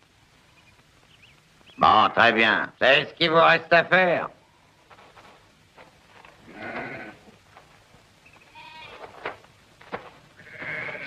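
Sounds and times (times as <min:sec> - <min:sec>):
sheep bleating: 0:06.4 - 0:07.3, 0:08.5 - 0:09.1, 0:10.4 - 0:11.0.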